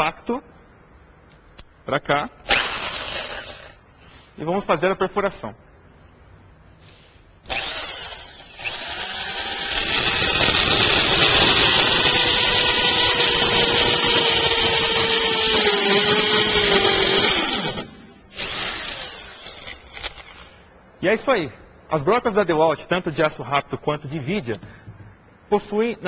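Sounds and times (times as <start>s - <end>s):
hammer drill boring into masonry: 7.4s - 20.5s.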